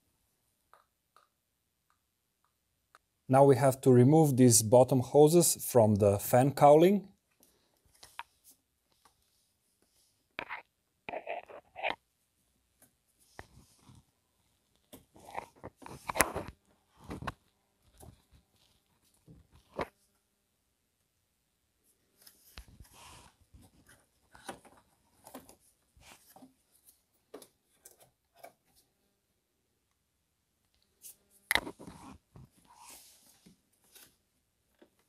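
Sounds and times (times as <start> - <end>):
rustling and scraping: 14.8 - 20.1, 22.0 - 28.9, 30.9 - 35.0.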